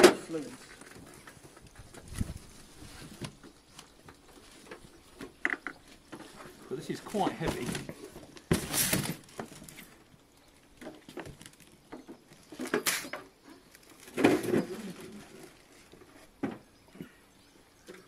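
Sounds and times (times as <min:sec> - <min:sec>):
plastic and cardboard rustling: 0:00.0 - 0:10.1.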